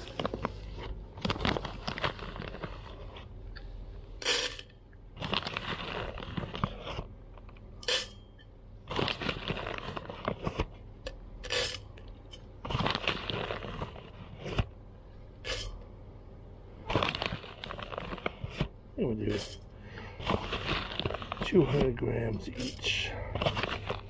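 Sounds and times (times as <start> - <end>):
paper bag crinkling: 0.0 - 3.3, 5.2 - 7.1, 8.9 - 10.7, 12.6 - 14.7, 16.8 - 24.0
coffee beans rattling: 4.2 - 6.9, 15.4 - 15.8, 16.8 - 24.0.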